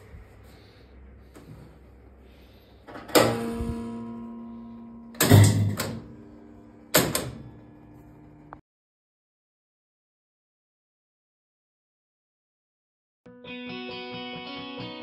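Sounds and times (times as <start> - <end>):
jukebox loud bangs: 5.2 - 6.0.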